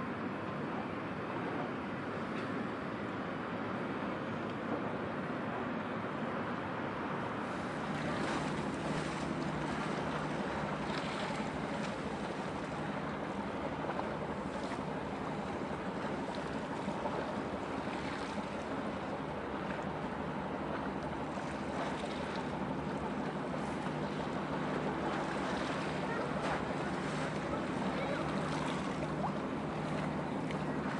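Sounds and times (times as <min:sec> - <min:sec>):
ship engine drone: 0:00.0 - 0:30.9
waves washing: 0:07.3 - 0:30.9.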